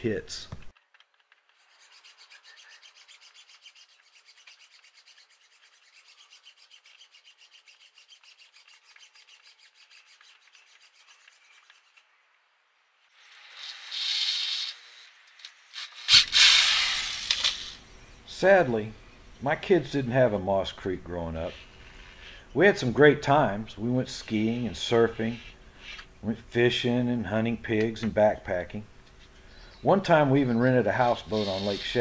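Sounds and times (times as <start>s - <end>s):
wire strands scratching: 1.5s - 12.0s, 30.7s - 32.0s
loud rasping scrape: 1.6s - 11.9s, 30.9s - 32.0s.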